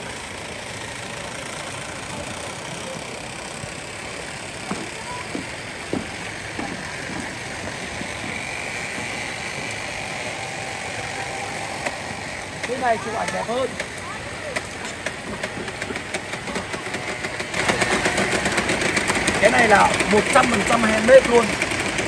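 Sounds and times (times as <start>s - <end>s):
steady rushing hiss: 0.0s - 22.0s
footsteps on bamboo footbridge: 4.4s - 22.0s.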